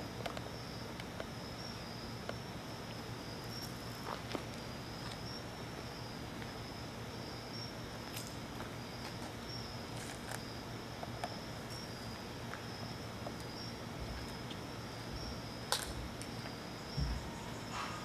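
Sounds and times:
constant hiss: 0.0 - 18.0
cricket chirping: 0.0 - 18.0
dull low thumps: 16.9 - 17.4.

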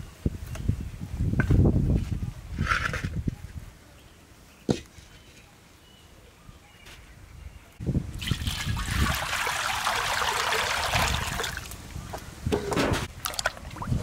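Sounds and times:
water pouring into metal wok: 8.2 - 11.7.

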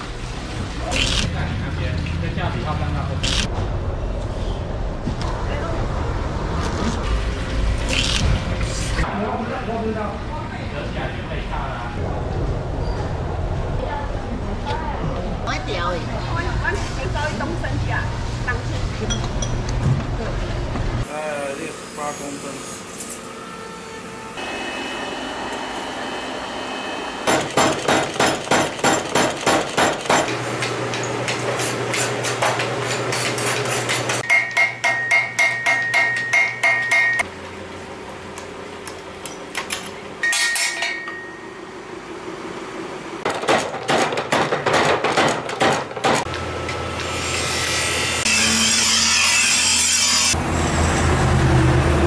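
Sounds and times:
power hammer fast strikes: 27.2 - 30.3
hammer striking hot steel on anvil: 27.2 - 31.0, 33.2 - 37.3, 40.2 - 41.6.

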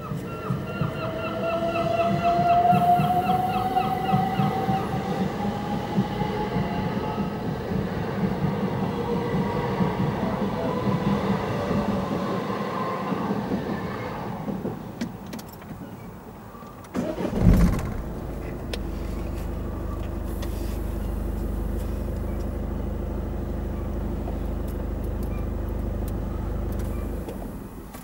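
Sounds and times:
vehicle engine starting and idling: 16.8 - 28.0.

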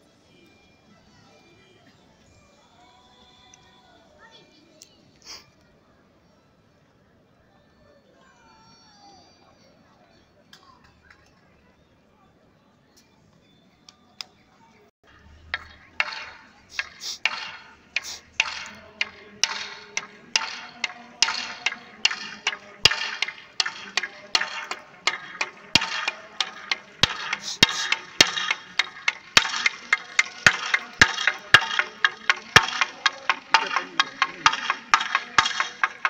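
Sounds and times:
marching boots on asphalt: 15.2 - 36.0.

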